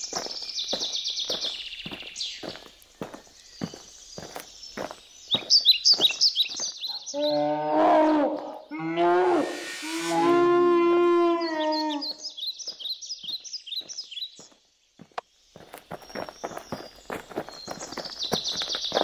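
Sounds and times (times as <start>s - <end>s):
running footsteps on grass: 0.0s - 6.9s, 12.7s - 19.0s
birds chirping: 0.0s - 19.0s.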